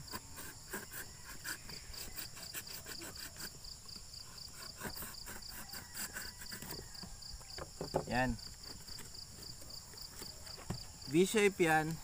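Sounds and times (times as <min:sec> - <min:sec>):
utility knife cutting cardboard: 0:00.0 - 0:03.6, 0:04.2 - 0:07.2
insect chirping: 0:00.0 - 0:12.0.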